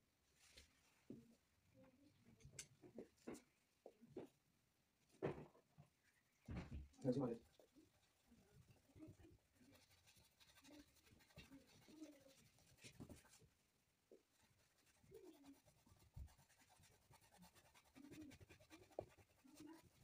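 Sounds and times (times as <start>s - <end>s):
paintbrush strokes on board: 7.0s - 20.0s.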